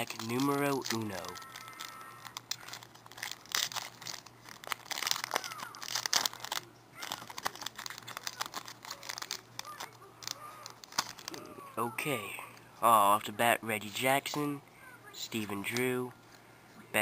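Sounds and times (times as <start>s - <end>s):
foil wrapper crinkling and tearing: 0.0s - 11.5s.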